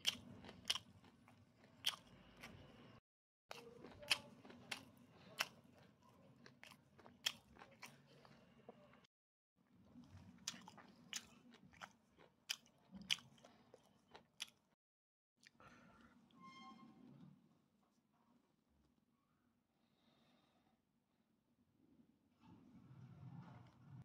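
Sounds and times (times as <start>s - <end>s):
chewing on chicken wing: 0.0s - 2.8s, 3.5s - 9.0s, 9.8s - 14.8s.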